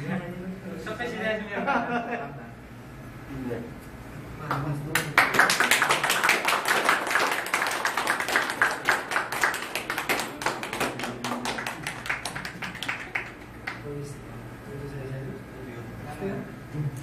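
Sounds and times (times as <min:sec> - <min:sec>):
people clapping: 0:04.4 - 0:14.0.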